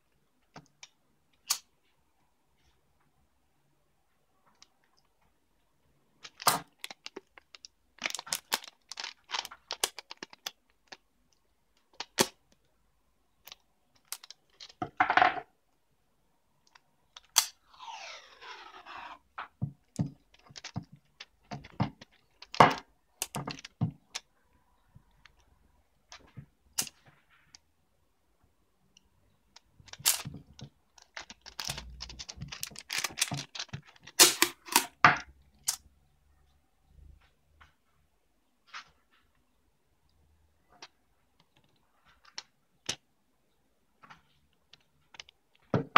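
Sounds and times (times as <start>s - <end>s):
plastic tape crinkling: 6.2s - 11.0s, 29.8s - 34.8s
tape tearing: 17.3s - 19.2s.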